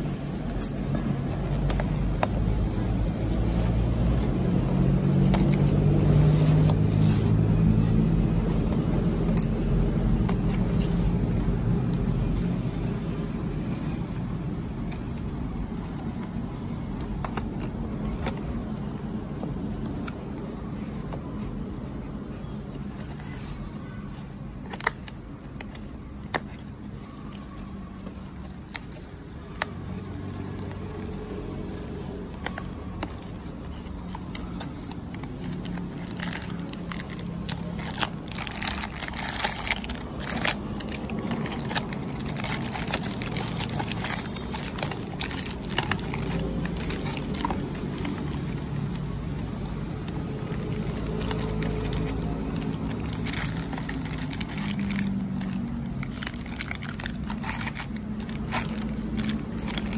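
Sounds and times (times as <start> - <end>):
plastic wrappers crinkling: 0.0 - 59.9.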